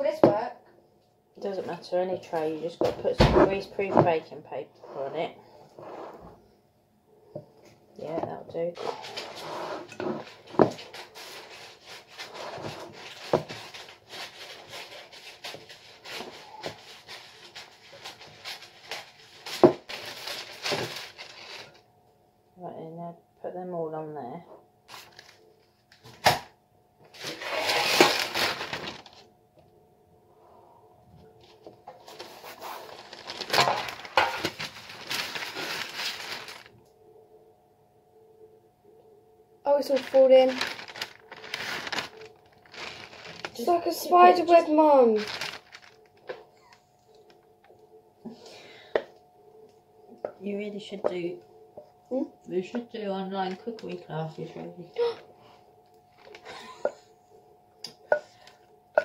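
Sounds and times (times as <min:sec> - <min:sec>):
baking paper rustling: 0:08.0 - 0:21.8, 0:24.9 - 0:25.9, 0:27.1 - 0:29.3, 0:31.4 - 0:36.8, 0:39.7 - 0:47.5
spoon crunching and scraping popcorn: 0:27.2 - 0:28.6.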